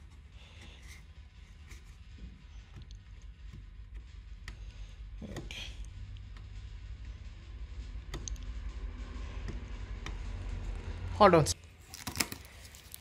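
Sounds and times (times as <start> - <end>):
low handling rumble: 1.2 - 11.6
fingers picking plastic film: 11.8 - 13.0
plastic film crinkle: 11.8 - 13.0.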